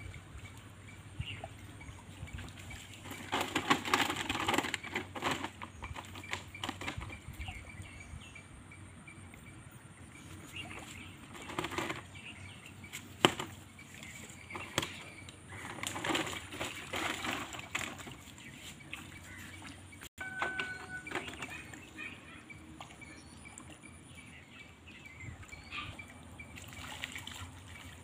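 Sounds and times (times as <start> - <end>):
rustling and handling noise: 2.9 - 7.3, 10.8 - 19.5.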